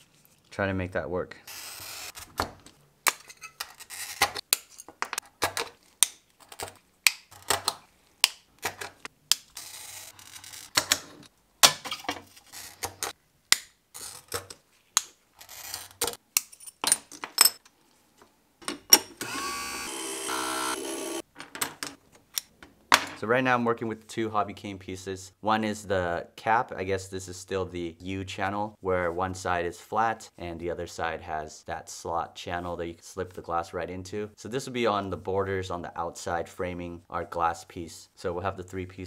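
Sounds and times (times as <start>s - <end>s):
glass grinder humming: 19.2s - 21.2s.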